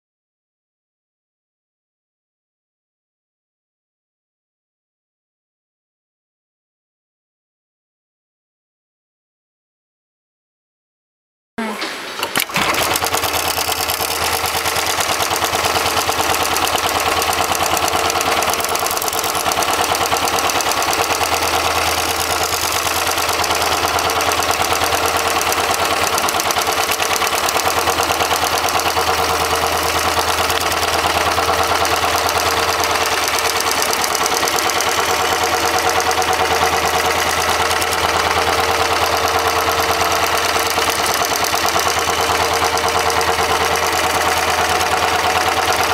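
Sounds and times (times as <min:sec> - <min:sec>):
sewing machine clatter: 0:12.0 - 0:45.9.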